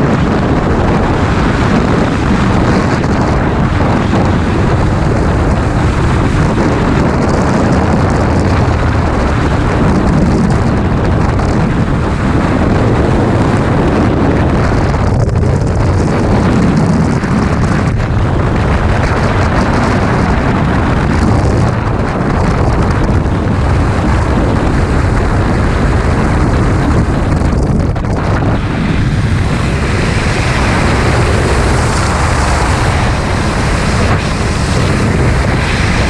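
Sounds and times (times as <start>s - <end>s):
wind buffeting a microphone: 0.0s - 36.0s.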